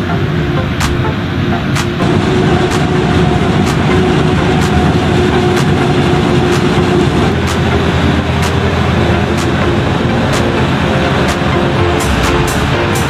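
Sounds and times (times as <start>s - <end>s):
harvester and tractor running: 0.0s - 13.0s.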